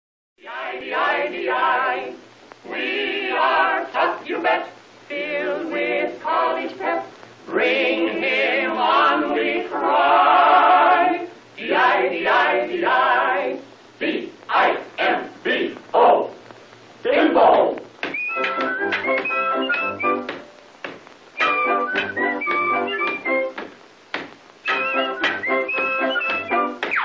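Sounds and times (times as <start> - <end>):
group of voices singing: 0.4 - 16.3.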